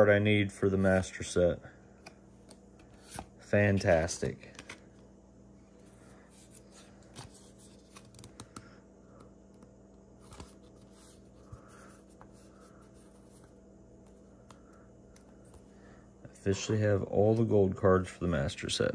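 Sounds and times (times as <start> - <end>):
steady low hum: 0.0 - 18.9
rustling of trading cards: 1.9 - 5.1, 5.7 - 15.8.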